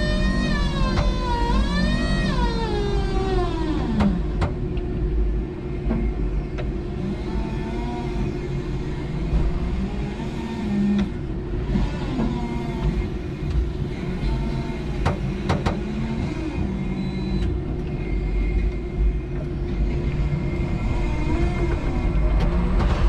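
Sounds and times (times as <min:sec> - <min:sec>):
forklift motor hum: 0:00.0 - 0:23.0.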